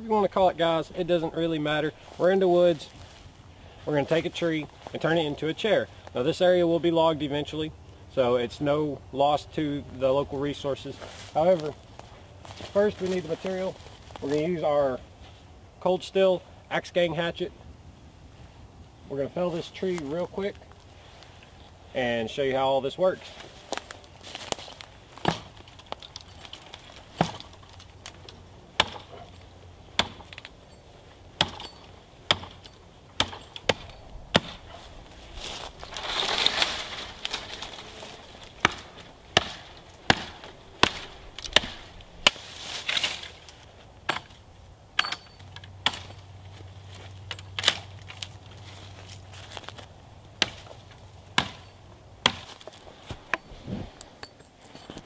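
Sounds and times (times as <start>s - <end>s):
tree trunk splintering: 23.7s - 29.2s, 35.4s - 44.4s, 51.4s - 53.4s
hatchet chopping wood: 25.2s - 25.6s, 27.1s - 27.6s, 28.8s - 29.1s, 30.0s - 30.5s, 31.4s - 34.7s, 38.6s - 42.4s, 44.0s - 44.4s, 45.0s - 46.2s, 50.4s - 50.7s, 51.3s - 52.7s.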